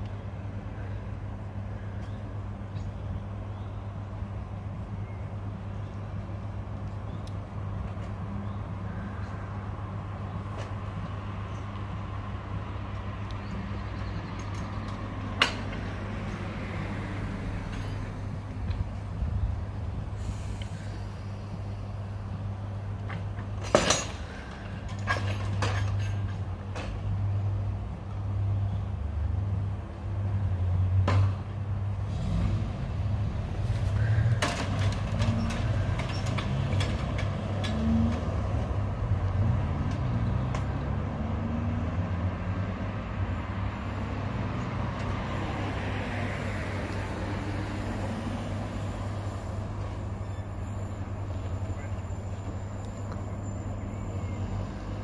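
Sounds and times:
road vehicle approaching: 0:00.0 - 0:55.0
crossing gates clanking: 0:23.1 - 0:27.2, 0:33.7 - 0:41.0
electric train hum: 0:43.0 - 0:55.0.

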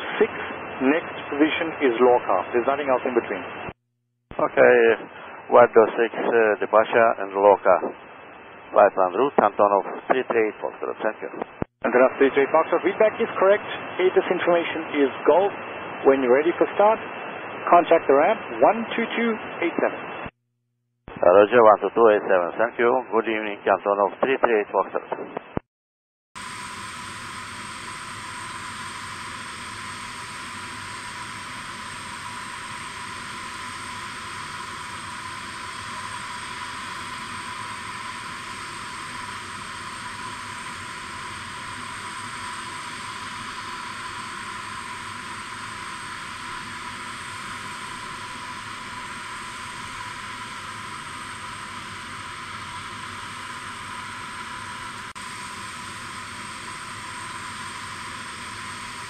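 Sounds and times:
auxiliary power unit hiss and whine: 0:00.0 - 0:03.8, 0:04.4 - 0:20.3, 0:26.4 - 0:59.0.

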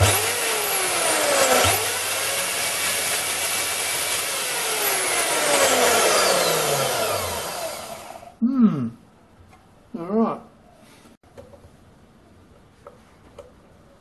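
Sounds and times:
band saw motor whine: 0:00.0 - 0:08.4.

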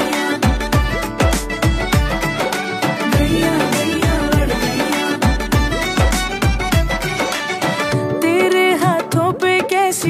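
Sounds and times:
upbeat dance music: 0:00.0 - 0:07.9.

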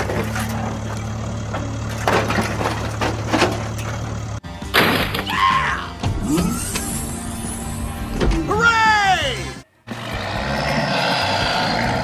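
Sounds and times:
plastic toys clattering and scraping: 0:00.0 - 0:04.4.

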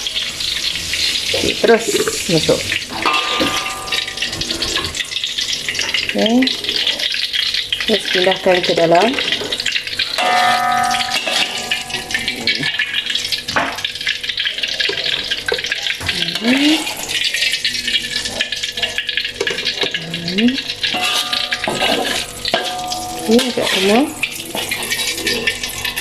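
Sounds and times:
hot oil sizzling in a wok: 0:00.0 - 0:26.0
metal ladle knocking on wok: 0:03.0 - 0:04.4, 0:10.2 - 0:12.8, 0:21.0 - 0:24.0.

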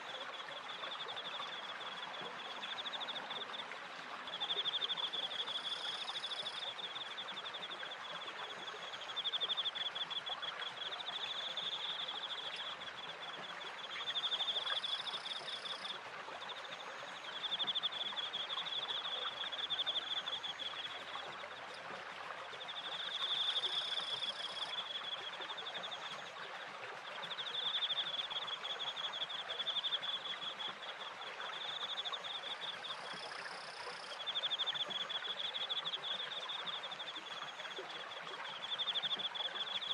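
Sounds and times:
crickets chirping: 0:00.9 - 0:03.6, 0:04.4 - 0:21.4, 0:22.7 - 0:26.3, 0:31.5 - 0:37.8.

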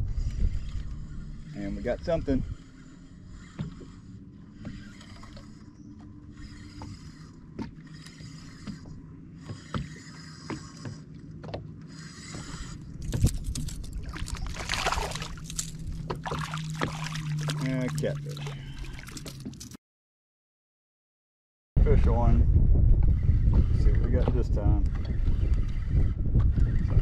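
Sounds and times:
fishing reel cranking: 0:11.9 - 0:16.0
fish splashing and thrashing: 0:12.2 - 0:19.8.

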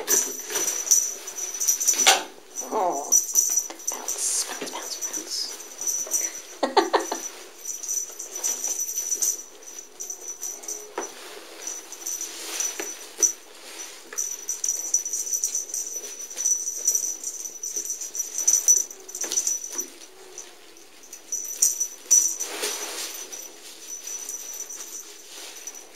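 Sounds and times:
rustling and scuffling on carpet: 0:04.9 - 0:17.0, 0:19.2 - 0:25.9.

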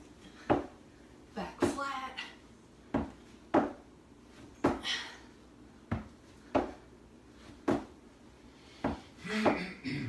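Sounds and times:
sneakers thumping on plywood: 0:02.9 - 0:03.8, 0:05.9 - 0:06.8, 0:07.5 - 0:08.0.

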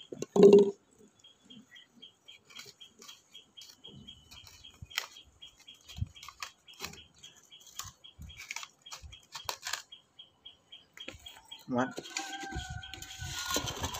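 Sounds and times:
objects handled on tiled floor: 0:11.9 - 0:13.9.

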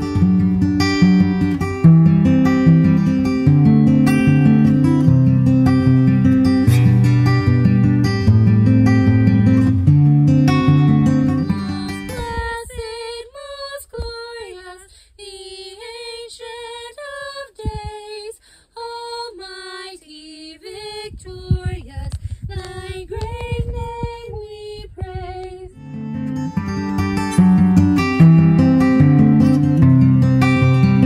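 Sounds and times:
acoustic guitar strumming: 0:00.0 - 0:12.6, 0:25.7 - 0:31.0
woman singing: 0:11.4 - 0:25.8.

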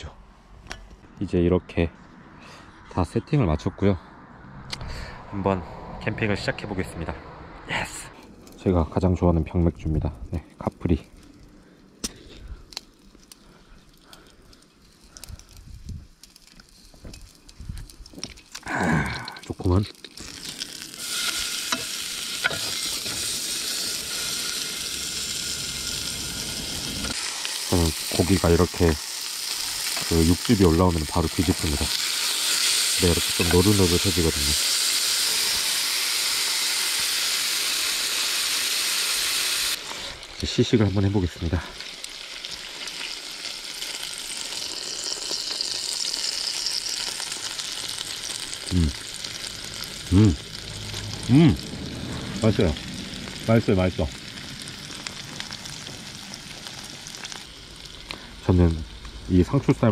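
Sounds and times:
meat sizzling on a grill pan: 0:16.2 - 0:59.9.

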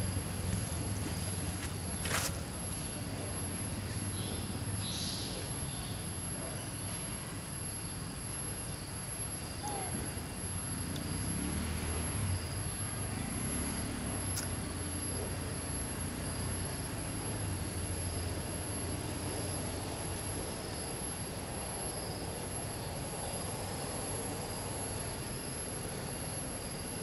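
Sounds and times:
faint bird-like chirps: 0:09.5 - 0:10.2.

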